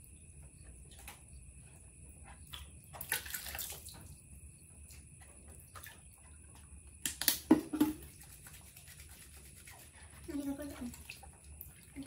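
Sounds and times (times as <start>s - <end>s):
faint drips and ticks: 0.0s - 7.4s, 8.1s - 12.0s
water splashing: 2.5s - 4.1s.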